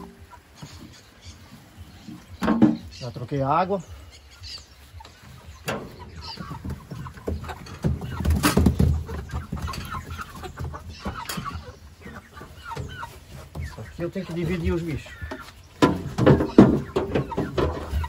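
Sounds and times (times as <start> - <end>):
chickens clucking: 0.0 - 18.0
knocks and clatter: 2.4 - 2.9, 5.7 - 11.6, 15.8 - 18.0.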